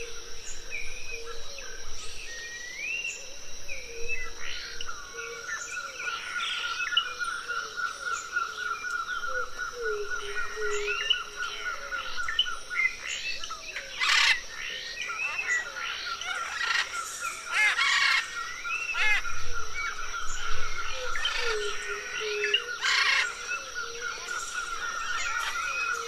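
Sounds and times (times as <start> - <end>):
pulsing insect trill: 0.0 - 26.0
birds chirping and whistling: 10.2 - 26.0.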